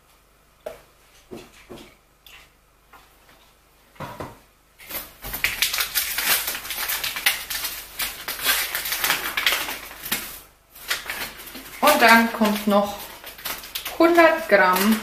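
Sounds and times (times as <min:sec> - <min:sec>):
packaging crinkling: 0:04.8 - 0:15.0.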